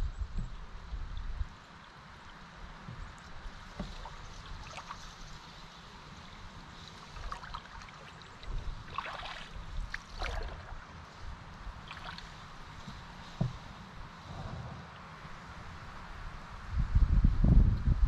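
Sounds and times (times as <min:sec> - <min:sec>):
river water running: 0:00.4 - 0:16.7
water splashing and dripping: 0:03.1 - 0:05.8, 0:06.8 - 0:11.0, 0:11.8 - 0:13.5.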